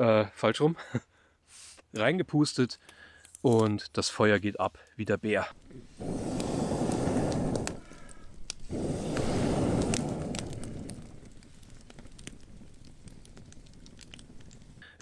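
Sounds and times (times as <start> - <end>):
wood crackling and popping: 2.8 - 15.0
breath blown through pipe whoosh: 5.7 - 11.7.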